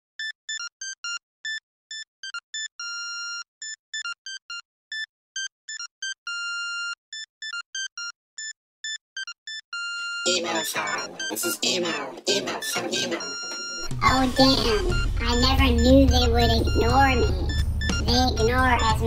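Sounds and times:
synthesizer melody of high beeps: 4.0 - 19.0.

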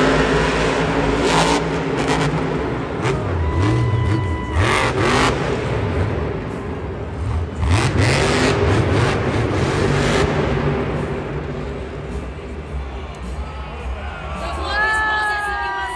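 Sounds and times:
monster truck engine revving: 0.0 - 12.6.

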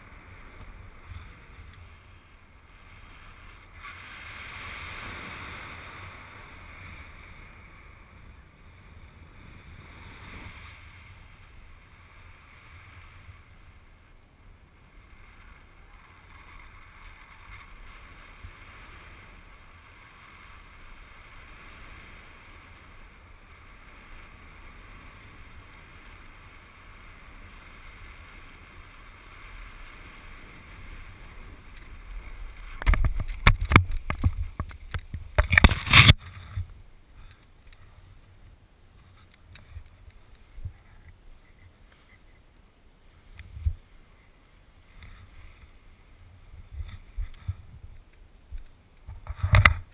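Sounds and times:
wind rushing over microphone: 14.7 - 41.7, 43.2 - 49.9.

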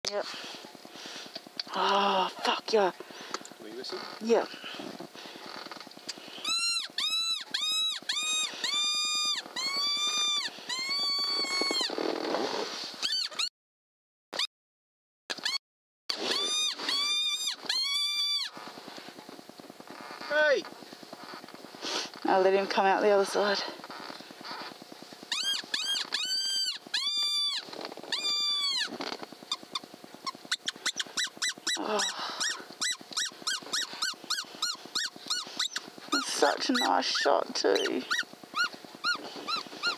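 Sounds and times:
fox whistle squealing notes: 6.4 - 11.9, 16.2 - 18.5, 25.3 - 28.9, 29.5 - 39.9.

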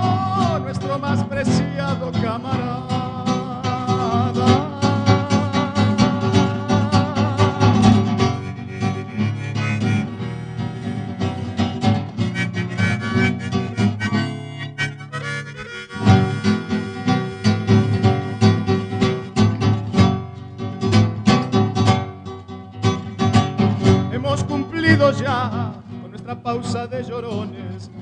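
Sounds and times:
acoustic guitar strumming: 0.0 - 28.0
harmonica: 3.7 - 20.0.

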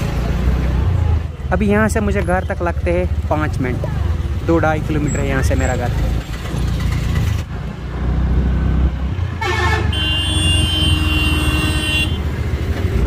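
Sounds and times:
motorcycle engine rumble: 0.0 - 13.0
vehicle horn: 9.4 - 12.4.

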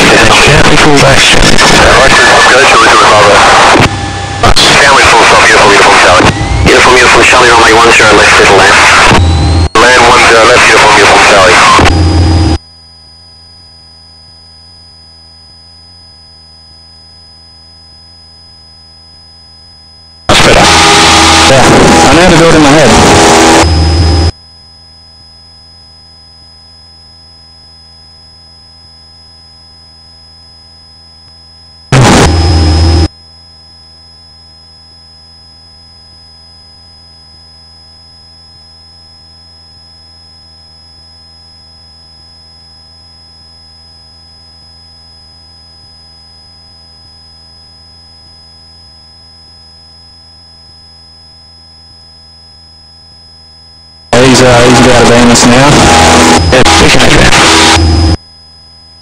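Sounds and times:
loud burst of noise: 0.0 - 12.6, 20.3 - 24.3, 31.9 - 33.1, 54.1 - 58.2
electrical hum and high whine: 0.0 - 59.0.

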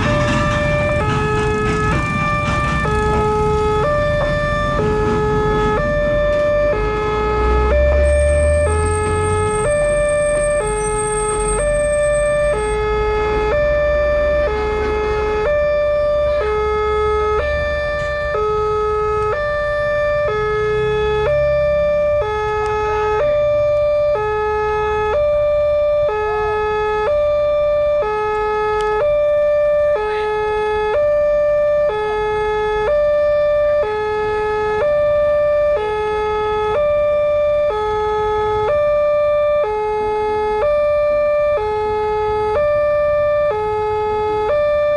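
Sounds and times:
level crossing alarm: 0.0 - 24.4.

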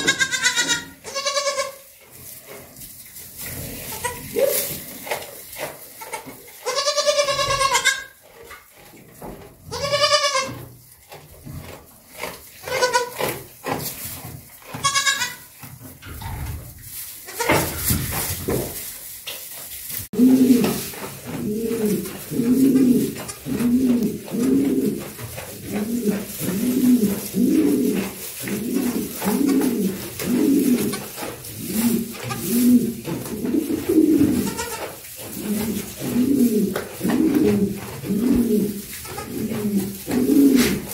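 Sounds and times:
goat kids bleating: 0.0 - 1.9, 3.9 - 4.5, 6.0 - 8.2, 9.7 - 10.7, 12.6 - 13.3, 14.7 - 15.6, 17.2 - 17.7, 23.0 - 24.2, 30.7 - 31.2, 32.0 - 32.6, 34.2 - 35.0, 38.8 - 40.1
straw rustling: 0.1 - 40.9.

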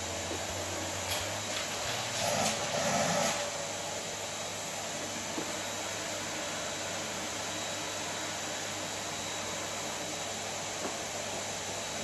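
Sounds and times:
vacuum cleaner on wooden floor: 0.0 - 12.0.

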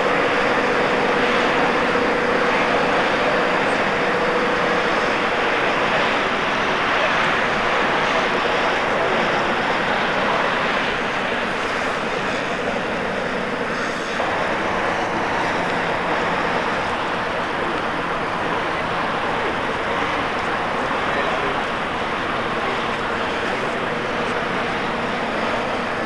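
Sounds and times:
truck diesel engine droning: 0.0 - 26.0.

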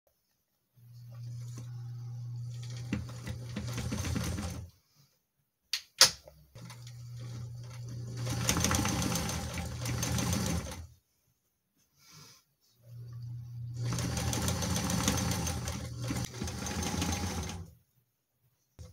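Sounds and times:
sewing machine running: 1.2 - 4.7, 6.6 - 10.9, 13.0 - 17.8.

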